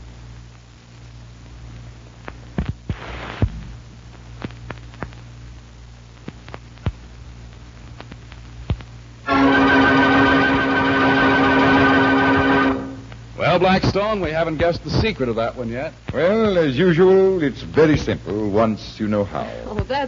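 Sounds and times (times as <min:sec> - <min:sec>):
faint hiss: 0:00.0 - 0:20.0
music: 0:09.2 - 0:13.2
low hum: 0:09.2 - 0:13.4.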